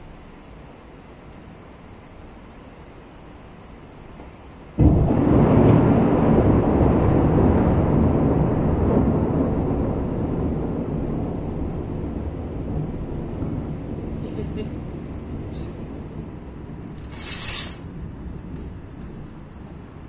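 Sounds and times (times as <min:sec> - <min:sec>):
rain: 0:00.0 - 0:20.0
thunder clap and rumble: 0:04.7 - 0:20.0.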